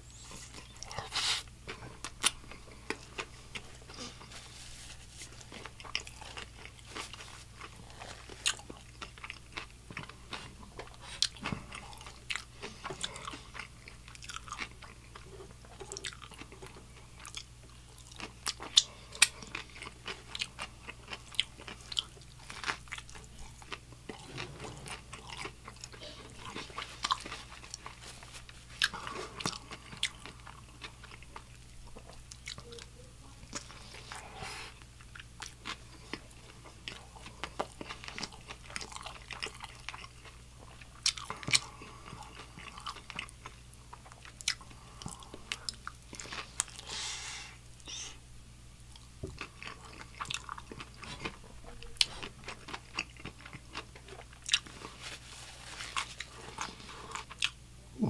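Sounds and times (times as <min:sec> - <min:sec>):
chewing crunchy fried chicken: 0:00.1 - 0:48.1, 0:48.8 - 0:58.0.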